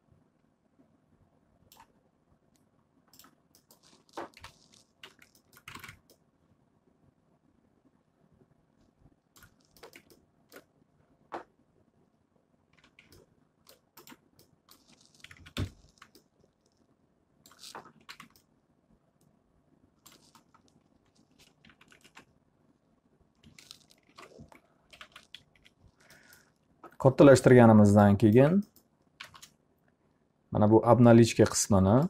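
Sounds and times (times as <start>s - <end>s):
computer mouse clicking: 3.1s - 6.2s, 9.4s - 10.7s, 12.8s - 16.3s, 17.4s - 18.5s, 20.0s - 22.3s, 23.4s - 27.0s, 28.4s - 29.6s
keyboard keys clicking: 3.1s - 6.2s, 9.4s - 10.7s, 12.8s - 16.3s, 17.5s - 18.5s, 23.5s - 25.8s, 28.4s - 29.5s.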